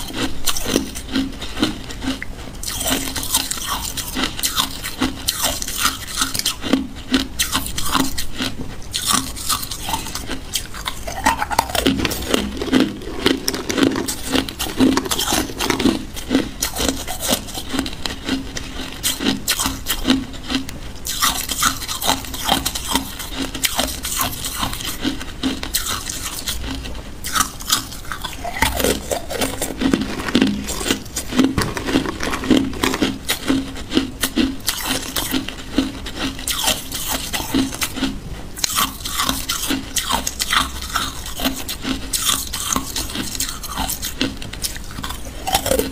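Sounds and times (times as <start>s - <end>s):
ice cubes crunching in teeth: 0.0s - 20.2s, 21.1s - 45.9s.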